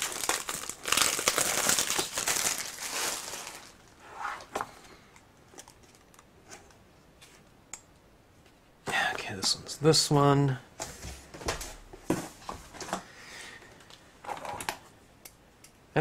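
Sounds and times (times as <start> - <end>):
packing paper crinkling: 0.0 - 3.9.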